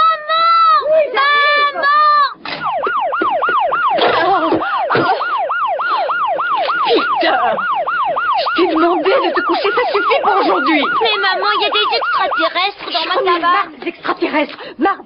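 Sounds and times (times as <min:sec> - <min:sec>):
electronic alarm wailing: 0:02.6 - 0:13.2.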